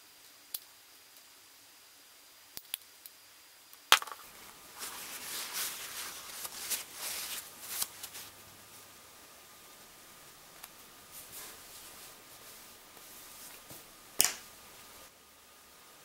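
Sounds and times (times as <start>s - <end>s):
small plastic clicks: 2.6s - 3.2s
paper towel rustling: 4.4s - 8.9s, 9.8s - 14.1s.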